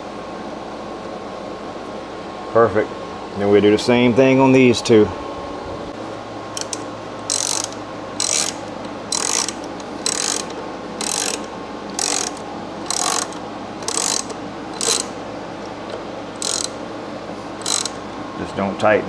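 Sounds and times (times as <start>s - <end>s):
socket ratchet clicking: 6.6s - 15.2s, 15.9s - 16.8s, 17.6s - 18.0s.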